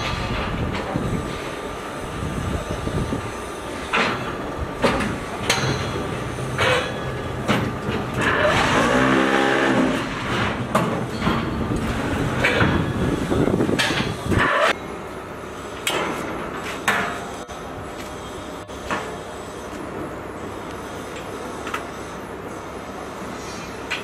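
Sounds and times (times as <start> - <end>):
metal clanks and knocks: 3.9 - 8.9, 9.8 - 13.0.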